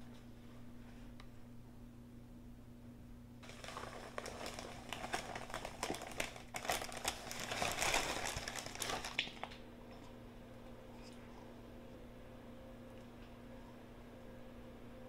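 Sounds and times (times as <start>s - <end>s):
plastic bag crinkling: 3.4s - 9.6s.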